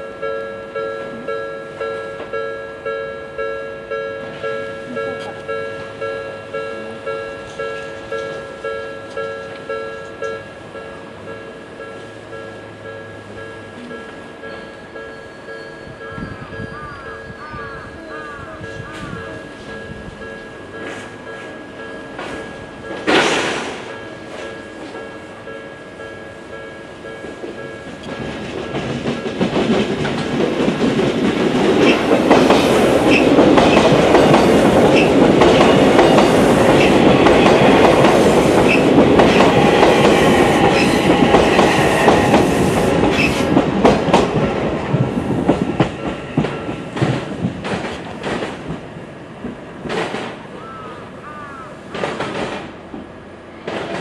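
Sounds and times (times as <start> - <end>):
electric train passing: 0.0 - 54.0
wheels clacking over rail joints: 20.6 - 26.1, 26.8 - 50.7, 51.8 - 54.0.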